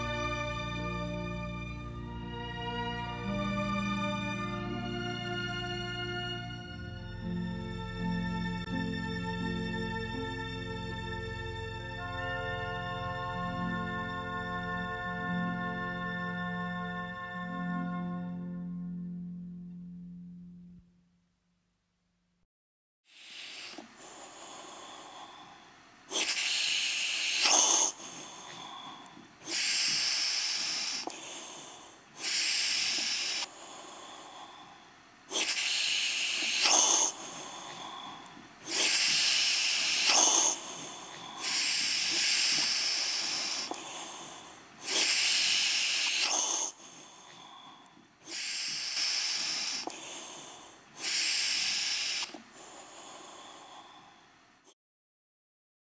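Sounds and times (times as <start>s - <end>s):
heavy breathing: 23.2s - 54.3s.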